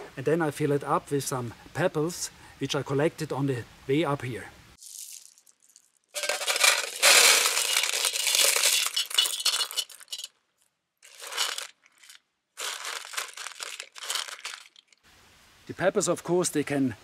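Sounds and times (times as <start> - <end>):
pebbles clattering on metal: 4.8 - 10.4, 11.0 - 15.0
cloth bag handled: 11.1 - 15.0.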